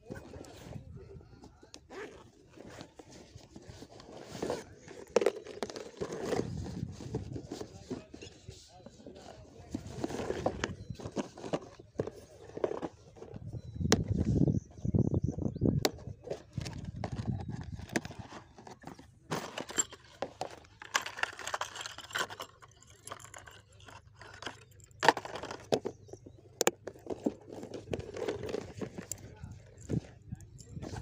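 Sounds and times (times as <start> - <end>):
plastic box clicks and rattles: 15.8 - 30.1.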